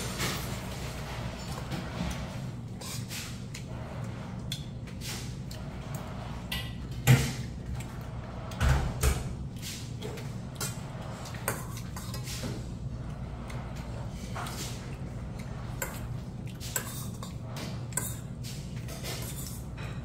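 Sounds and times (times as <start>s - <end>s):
spoon scraping metal bowl: 1.3s - 5.3s, 10.6s - 20.0s
chewing: 3.0s - 6.3s, 9.4s - 19.8s.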